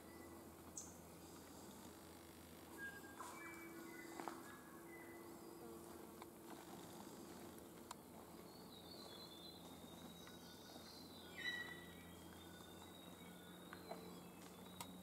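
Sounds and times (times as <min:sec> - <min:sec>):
faint high bird calls: 0:02.7 - 0:05.9, 0:08.3 - 0:15.0.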